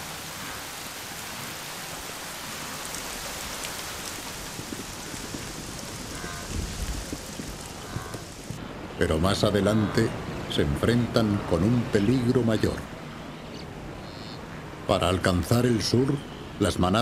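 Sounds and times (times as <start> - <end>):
steady rain falling: 0.0 - 14.6.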